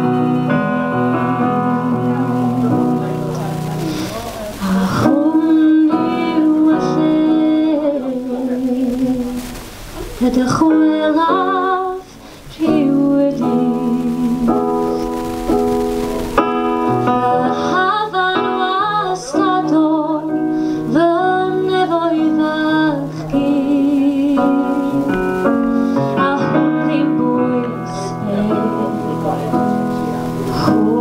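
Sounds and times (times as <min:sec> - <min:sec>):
woman singing: 0:00.0 - 0:03.2, 0:04.5 - 0:09.6, 0:10.2 - 0:15.3, 0:17.0 - 0:31.0
electric keyboard chords: 0:00.0 - 0:31.0.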